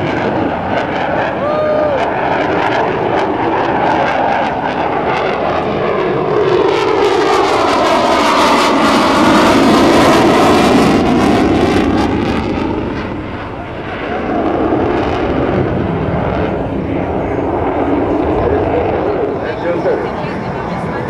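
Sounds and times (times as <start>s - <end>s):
jet engine passing: 0.0s - 21.0s.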